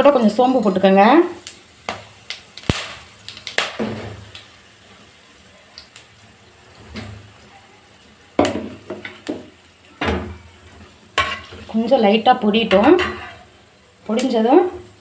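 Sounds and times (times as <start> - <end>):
spices frying in oil: 0.0 - 15.0
spatula scraping a metal pan: 12.7 - 13.5.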